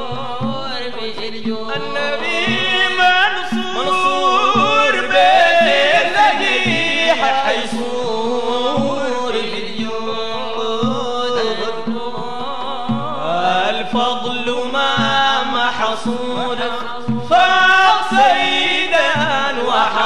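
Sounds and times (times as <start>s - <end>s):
low drum beat: 0.0s - 20.0s
men chanting: 0.0s - 20.0s.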